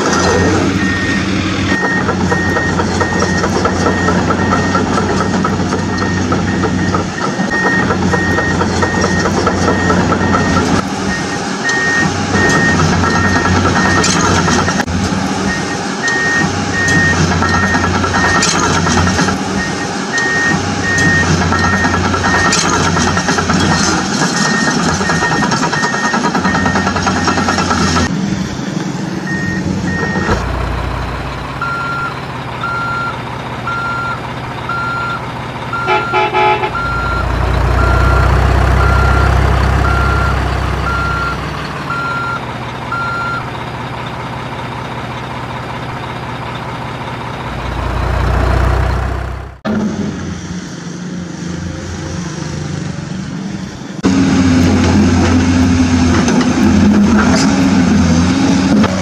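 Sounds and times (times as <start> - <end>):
heavy truck engine running: 0.0 - 59.0
reversing alarm beeping: 0.2 - 14.8, 15.5 - 28.1, 29.2 - 43.5
short horn toot: 35.8 - 36.9.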